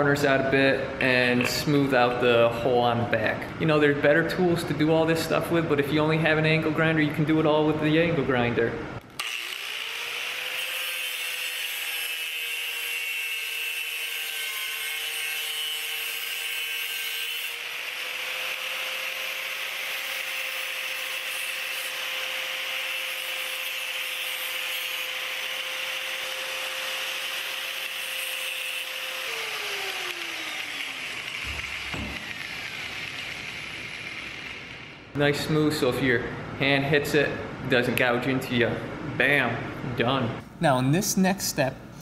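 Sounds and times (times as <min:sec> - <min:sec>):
angle grinder grinding metal: 0:09.2 - 0:35.0.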